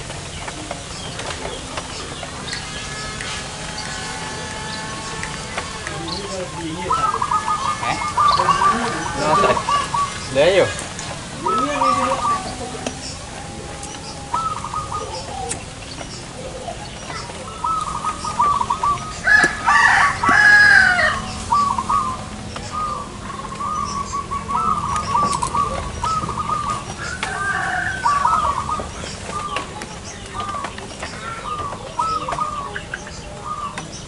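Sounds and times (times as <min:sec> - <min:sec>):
doves cooing trills: 0:00.0 - 0:34.0
rooster crowing: 0:02.8 - 0:10.7, 0:17.6 - 0:23.1, 0:26.4 - 0:29.5.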